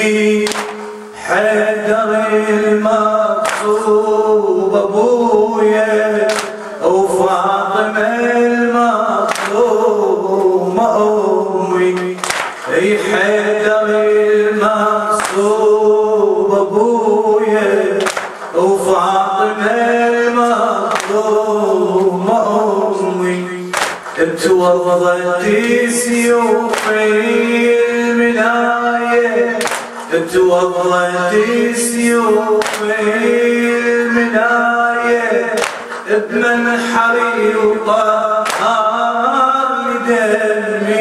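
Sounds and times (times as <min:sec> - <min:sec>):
man chanting into a microphone: 0:00.0 - 0:41.0
chest-beating slaps: 0:00.4 - 0:00.9, 0:03.4 - 0:03.8, 0:06.3 - 0:06.7, 0:09.3 - 0:09.6, 0:12.1 - 0:12.7, 0:18.0 - 0:18.6, 0:20.9 - 0:21.2, 0:23.7 - 0:24.2, 0:26.7 - 0:27.0, 0:29.6 - 0:30.0, 0:32.6 - 0:32.9, 0:35.6 - 0:36.1, 0:38.4 - 0:38.8.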